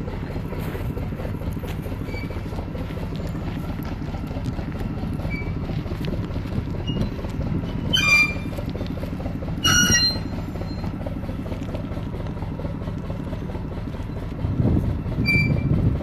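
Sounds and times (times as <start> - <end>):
locomotive rumbling: 0.0 - 16.0
wheels squealing on rail: 1.8 - 3.8, 5.0 - 11.3, 15.0 - 16.0.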